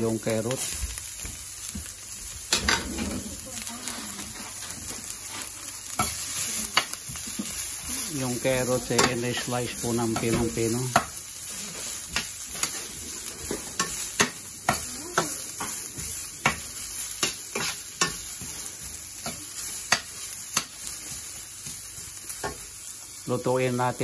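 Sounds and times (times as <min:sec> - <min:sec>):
vegetables sizzling in a skillet: 0:00.0 - 0:24.0
metal spatula scraping a pan: 0:02.5 - 0:21.4.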